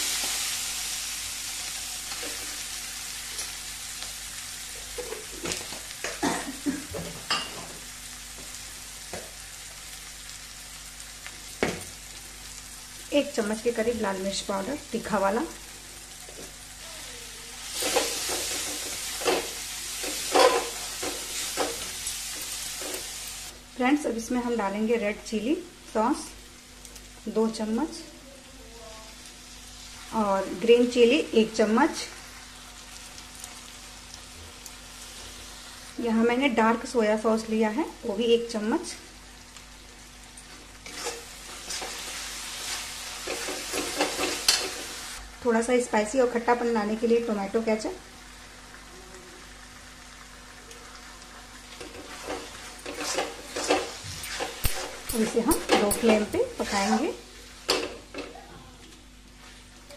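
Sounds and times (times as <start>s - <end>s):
vegetables sizzling in a pan: 0.0s - 59.9s
metal spatula scraping pan: 40.8s - 42.0s, 51.8s - 57.0s.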